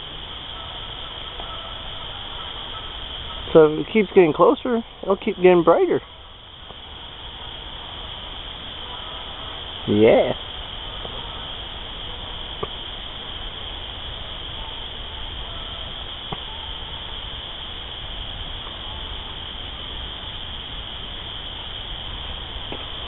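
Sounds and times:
night chorus of insects or frogs: 0.0s - 23.0s
faint ticks: 12.6s - 12.8s, 22.6s - 23.0s.

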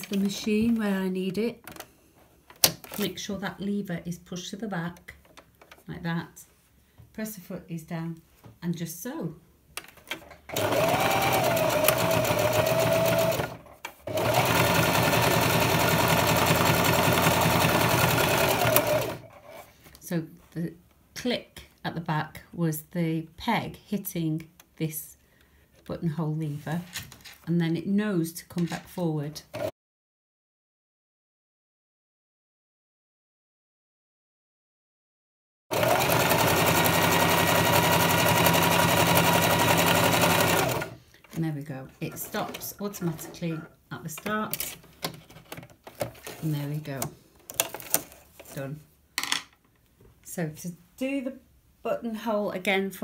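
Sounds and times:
sewing machine stitching: 10.1s - 19.6s, 29.5s - 29.7s, 35.7s - 41.0s.

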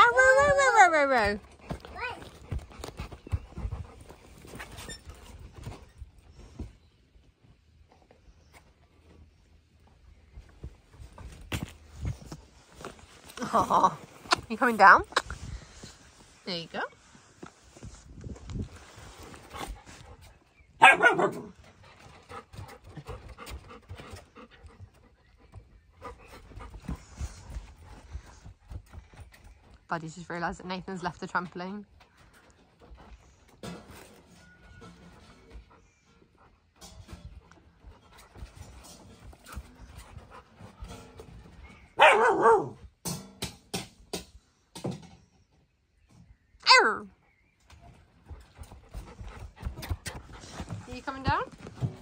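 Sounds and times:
paws scuffling: 0.0s - 6.0s, 47.8s - 52.0s
dogs panting: 1.4s - 4.8s, 21.2s - 29.0s, 35.3s - 41.6s, 47.8s - 52.0s
dog barking: 20.8s - 21.5s, 42.0s - 42.8s.

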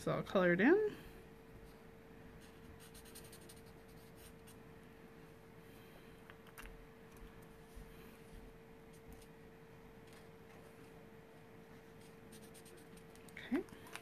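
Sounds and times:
faint steady hum: 0.0s - 14.0s
marker scratching on paper: 2.4s - 4.6s, 12.0s - 13.2s.

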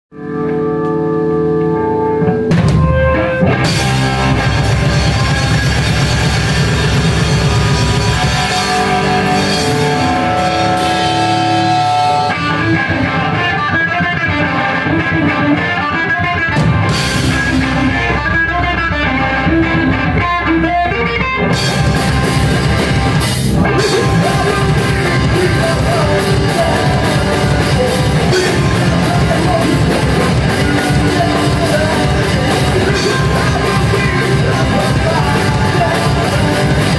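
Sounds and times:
electric guitar: 0.1s - 36.9s
drum kit: 0.4s - 20.6s, 21.4s - 36.9s.

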